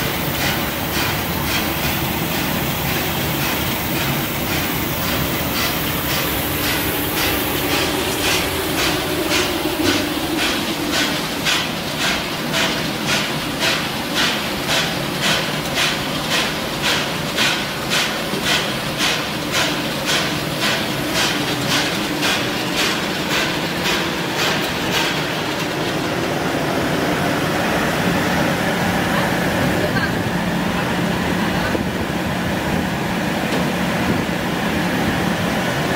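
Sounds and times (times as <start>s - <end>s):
roasting machine humming: 0.0s - 12.0s
machine knocking: 0.0s - 26.4s.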